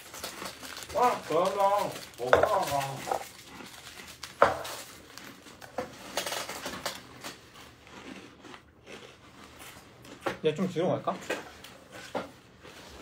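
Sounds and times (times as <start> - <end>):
clinks and knocks on a table: 2.3 - 3.2.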